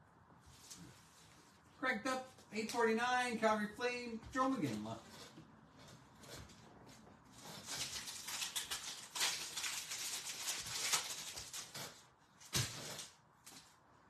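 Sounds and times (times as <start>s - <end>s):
cards rustling: 7.5s - 12.0s.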